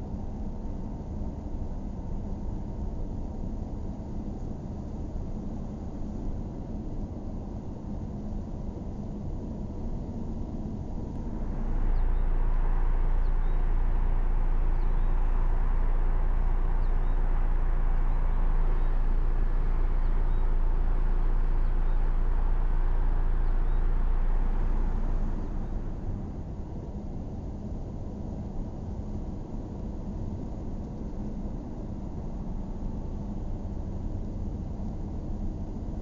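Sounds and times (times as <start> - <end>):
outdoor rumble and hiss: 0.0 - 36.0
car road noise: 11.0 - 26.5
faint high chirps: 11.3 - 25.8.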